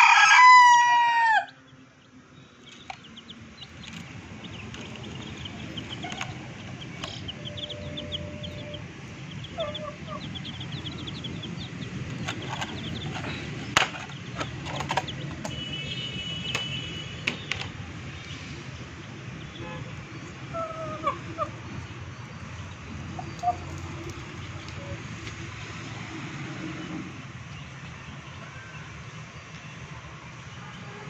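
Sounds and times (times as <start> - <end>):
chicks peeping: 2.0 - 15.6, 19.0 - 25.3.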